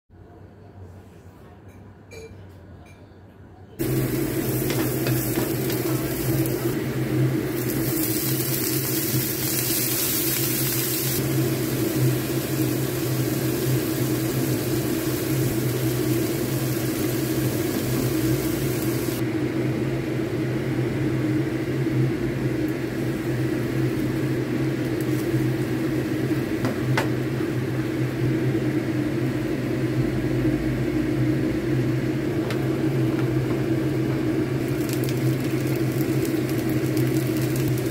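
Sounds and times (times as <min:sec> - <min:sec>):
food sizzling in oil: 0:03.8 - 0:19.2, 0:22.0 - 0:28.3, 0:32.7 - 0:37.9.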